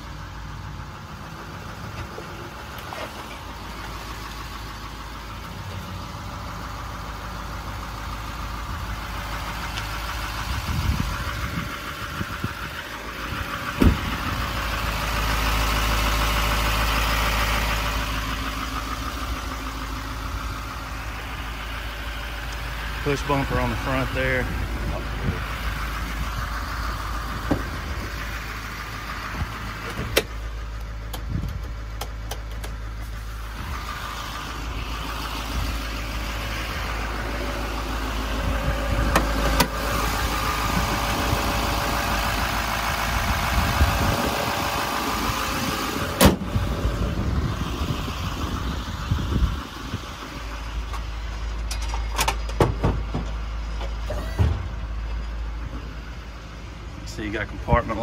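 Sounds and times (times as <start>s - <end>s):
diesel engine idling: 0.0s - 58.0s
sharp clicks and knocks: 29.8s - 32.8s, 50.9s - 54.6s.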